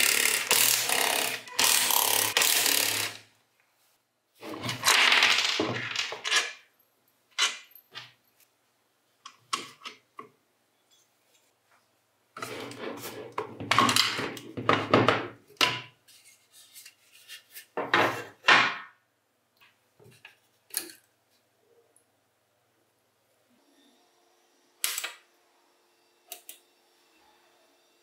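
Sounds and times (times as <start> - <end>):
rubbing or scraping: 12.4 - 13.4.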